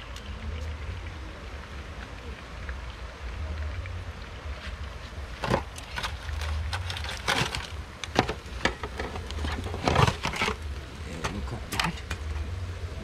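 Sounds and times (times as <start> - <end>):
utensils and pots clattering: 5.4 - 12.5.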